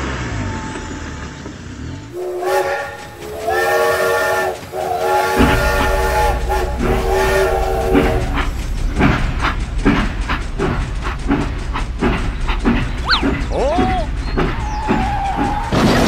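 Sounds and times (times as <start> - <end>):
toy locomotive chugging: 2.1 - 16.0
toy train whistle: 2.2 - 8.5
short gliding squeaks: 13.0 - 13.5.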